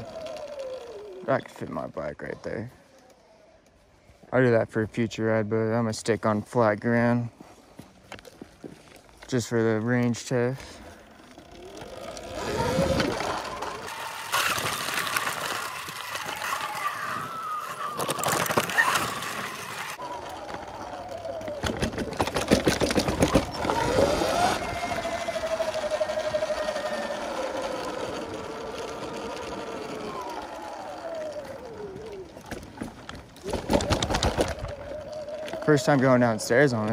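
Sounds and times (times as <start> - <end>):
electric motorbike motor whining: 0.0 - 2.3, 10.2 - 36.9
tyre noise: 0.0 - 3.2, 5.6 - 36.9
wind: 0.0 - 36.9
rattling knocks over bumps: 20.8 - 24.8.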